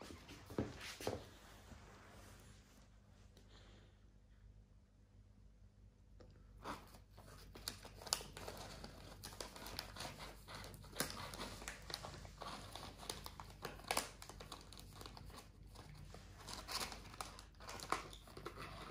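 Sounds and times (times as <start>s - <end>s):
crisp packet crinkling: 7.2s - 18.9s.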